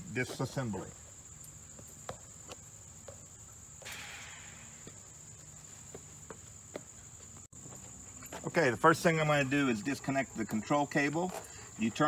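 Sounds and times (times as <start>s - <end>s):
steady high-pitched whine: 0.0s - 12.0s.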